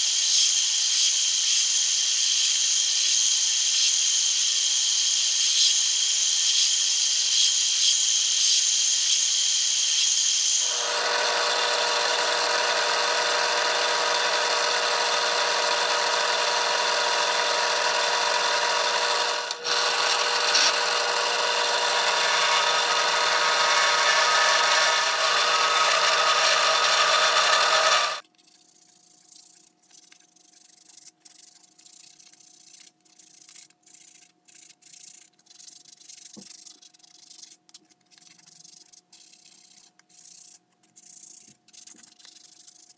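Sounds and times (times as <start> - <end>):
belt sander running: 10.6 - 28.2
drill press cutting wood: 10.6 - 28.2
sandpaper rubbing wood: 19.6 - 42.9.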